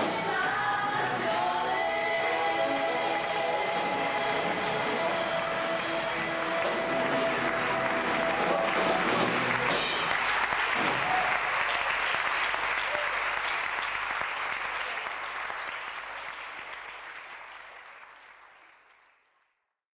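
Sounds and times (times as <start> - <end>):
applause: 5.2 - 19.7.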